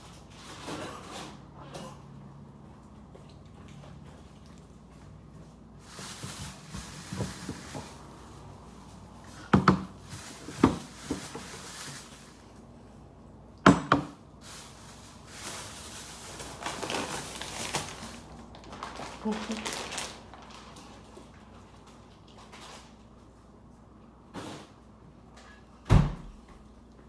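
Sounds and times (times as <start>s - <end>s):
rustling of grocery bags: 0.0s - 1.7s, 2.3s - 13.2s, 14.2s - 24.8s
groceries knocking and clunking: 5.8s - 12.4s, 13.6s - 21.4s.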